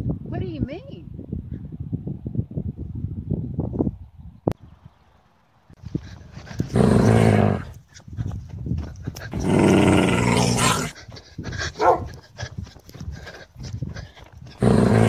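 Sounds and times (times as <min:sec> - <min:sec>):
dog growling: 0:06.6 - 0:07.7, 0:09.3 - 0:11.0, 0:13.9 - 0:15.0.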